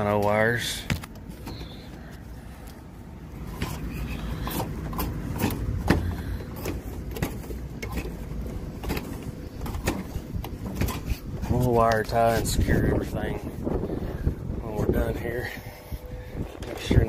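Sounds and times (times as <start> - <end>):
low steady rumble: 0.0 - 17.0
wire scraping and knocking on metal: 3.4 - 12.5.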